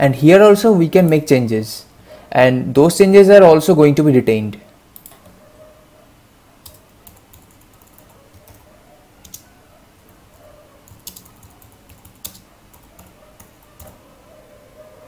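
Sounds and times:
keyboard typing: 5.0 - 5.4, 6.6 - 9.5, 10.1 - 14.0.

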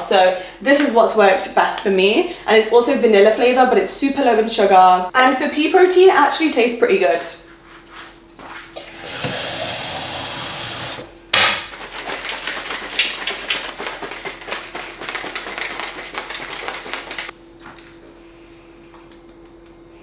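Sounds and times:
tap running water into bottle: 8.8 - 11.0
shaker bottle rattling: 11.7 - 17.4.

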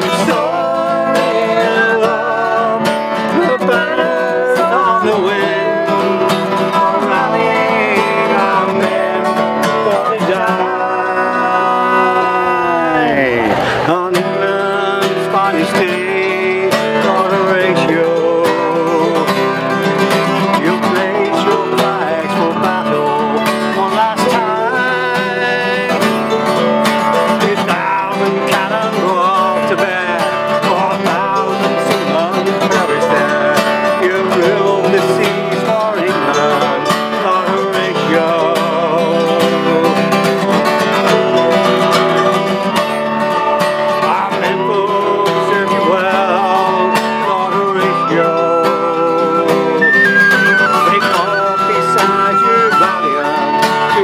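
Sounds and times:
mandolin: 0.0 - 54.0
strummed acoustic guitar: 0.0 - 54.0
tin whistle: 18.8 - 54.0.

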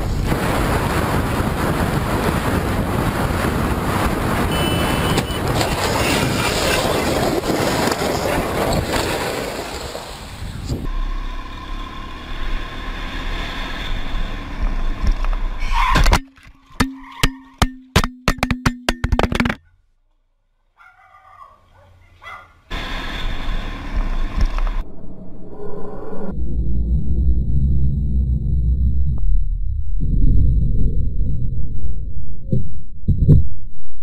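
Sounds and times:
wind rushing: 0.0 - 10.9
sharp knocks and clatters: 16.0 - 19.6.

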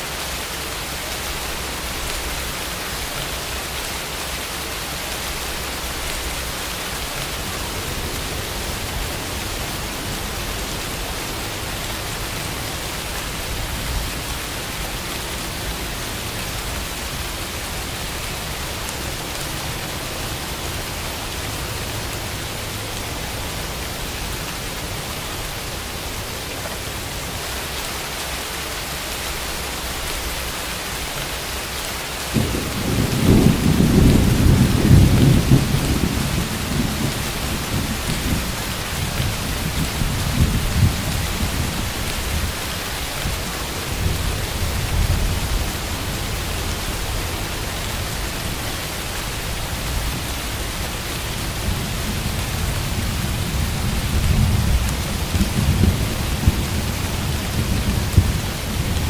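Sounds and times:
steady rain falling: 0.0 - 59.0
thunder rumbling: 32.3 - 59.0.

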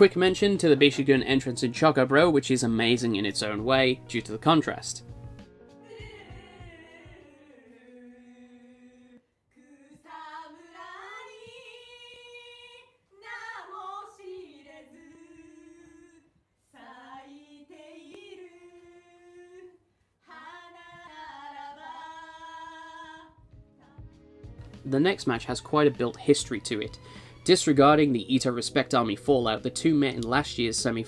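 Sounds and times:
woman singing unaccompanied: 5.8 - 24.1.

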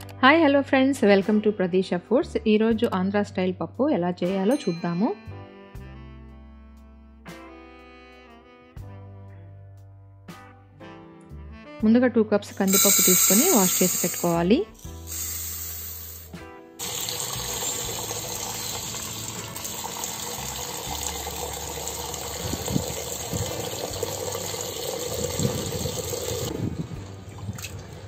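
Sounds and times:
tap water running into a pot: 16.8 - 26.5.

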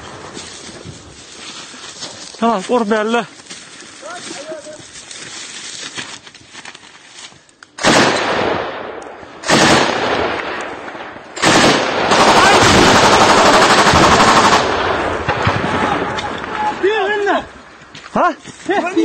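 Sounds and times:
rapid automatic gunfire: 7.8 - 8.5, 9.4 - 10.4, 11.4 - 16.0
loud gunshots with echo: 7.8 - 16.5.

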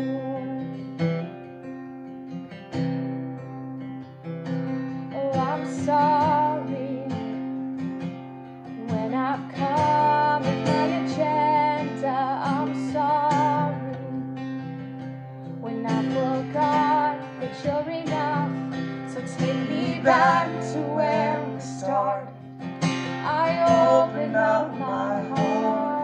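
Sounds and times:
acoustic guitar strummed: 0.0 - 26.0
woman singing worship song: 8.8 - 14.2, 15.6 - 22.4, 23.2 - 26.0.

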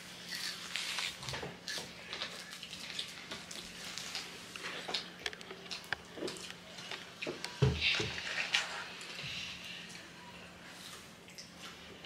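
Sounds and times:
chewing and mouth sounds: 0.2 - 7.4
small clicks and crackles: 0.3 - 7.6.

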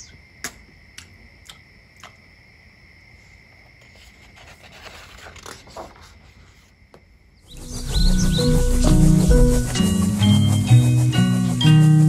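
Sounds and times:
book scraping and rubbing: 3.8 - 6.7, 7.5 - 11.5.

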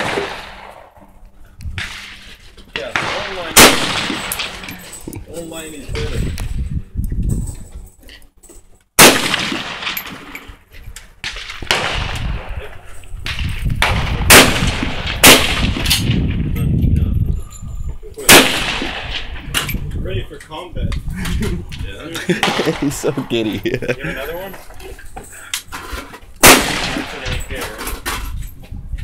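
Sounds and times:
rifle shots with echo: 0.0 - 0.9, 2.8 - 4.7, 9.0 - 10.3, 11.2 - 12.6, 13.3 - 16.2, 18.3 - 19.4, 26.4 - 27.3.

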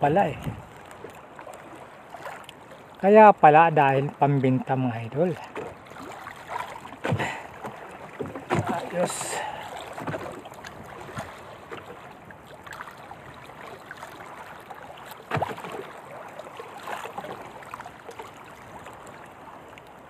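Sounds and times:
water lapping and splashing: 0.0 - 20.0
knocks on wooden boat: 7.0 - 8.9, 15.3 - 15.8.

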